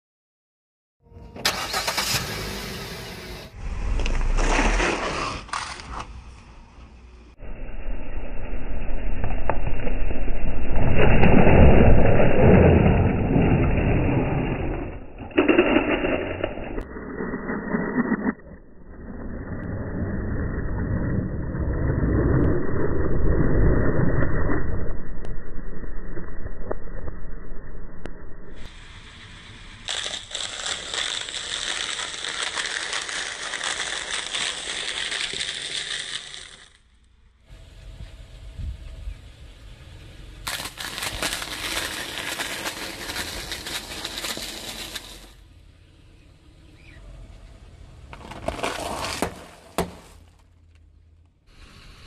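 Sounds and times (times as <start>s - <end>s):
car tyre and engine noise: 1.2s - 52.0s
tyre crushing crunchy snacks: 29.9s - 36.7s, 40.5s - 45.3s.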